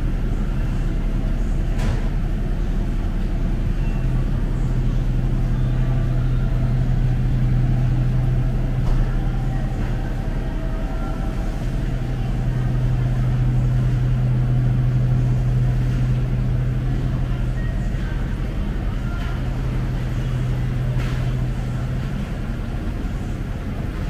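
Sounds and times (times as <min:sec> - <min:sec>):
refrigerator and ventilation hum: 0:00.0 - 0:24.0.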